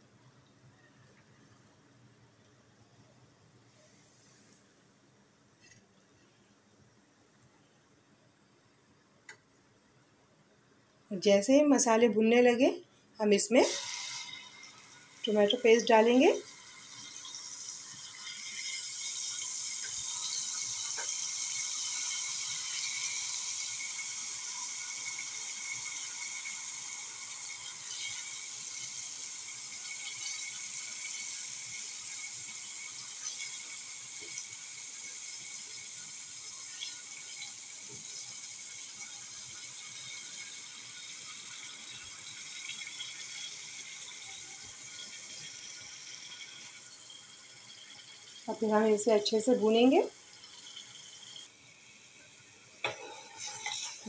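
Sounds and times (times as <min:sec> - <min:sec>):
food sizzling in hot oil: 0:13.2 - 0:54.0.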